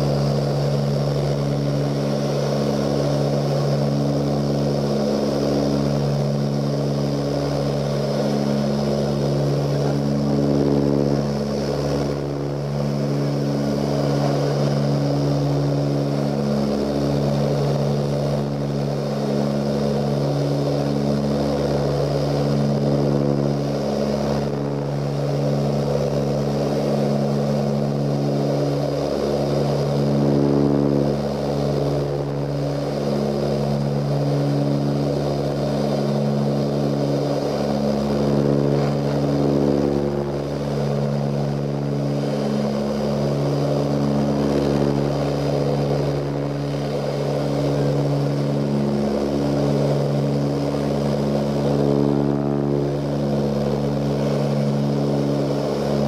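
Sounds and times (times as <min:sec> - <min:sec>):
constant rushing hiss: 0:00.0 - 0:56.0
low propeller tones: 0:00.0 - 0:56.0.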